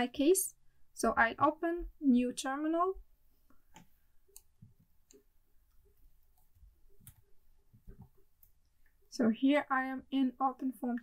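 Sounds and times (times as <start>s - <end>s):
keyboard and mouse clicks: 3.5s - 8.6s.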